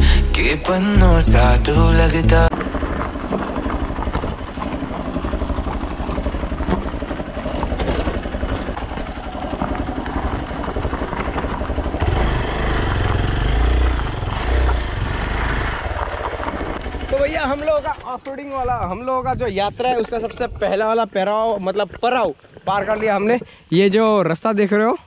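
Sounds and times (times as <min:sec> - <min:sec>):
heavier low rumble: 0:00.0 - 0:18.1
motorcycle engine running: 0:00.0 - 0:18.3.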